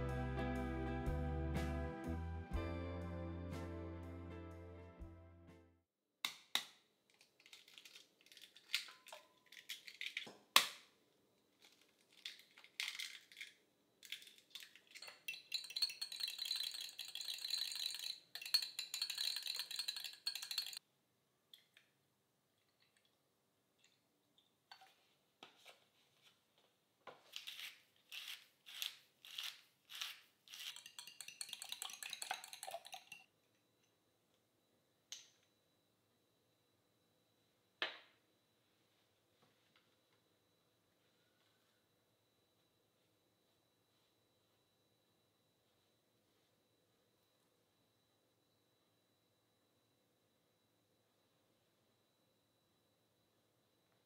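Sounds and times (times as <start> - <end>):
eggs cracking against glass: 7.2 - 10.8, 11.6 - 20.8, 28.2 - 33.3
utensils clinking on glass: 14.0 - 20.8, 30.6 - 33.3
whisk clicking in glass: 14.6 - 20.8, 30.6 - 33.3.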